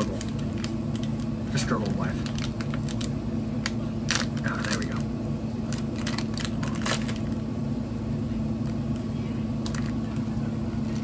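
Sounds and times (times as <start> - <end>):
plastic bag crinkling: 1.9 - 5.0, 5.6 - 7.4.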